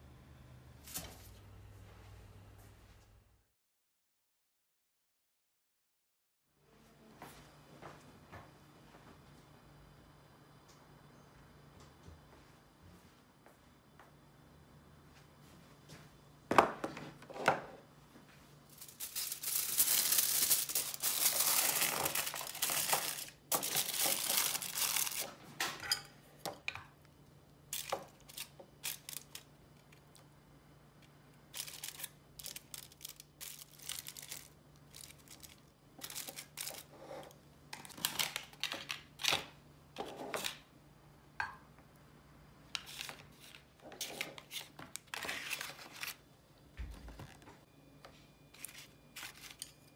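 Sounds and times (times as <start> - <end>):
aluminium foil crinkling: 18.7 - 25.4, 27.7 - 30.2, 31.5 - 36.9, 37.8 - 39.5, 42.8 - 46.2, 48.5 - 49.9.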